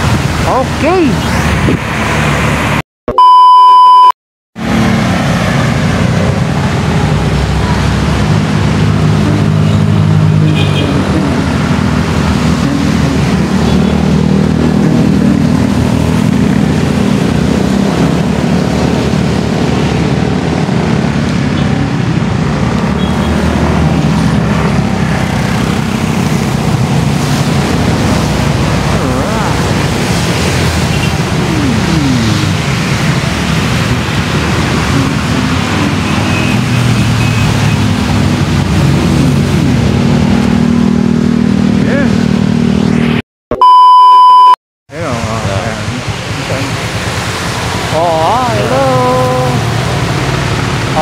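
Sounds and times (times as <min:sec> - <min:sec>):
test pattern beep: 0:03.1 - 0:04.1, 0:43.5 - 0:44.6.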